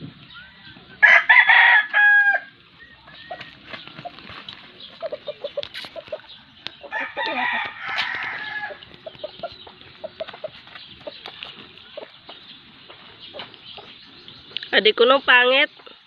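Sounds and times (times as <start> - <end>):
rooster crowing: 0.6 - 2.6, 6.9 - 8.9
chickens clucking: 2.5 - 16.0.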